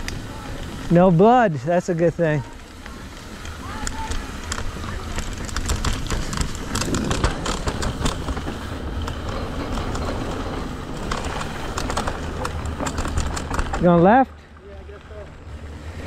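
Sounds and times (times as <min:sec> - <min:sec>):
bike tyres rumbling on dirt: 0:00.0 - 0:16.0
bike rattling clicks: 0:02.4 - 0:14.2.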